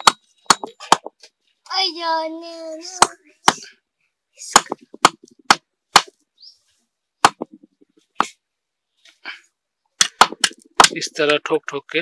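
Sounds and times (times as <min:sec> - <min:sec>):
sharp knocks on wooden block: 0:00.0 - 0:01.2, 0:03.0 - 0:03.7, 0:04.5 - 0:06.2, 0:07.2 - 0:08.4, 0:10.0 - 0:11.4.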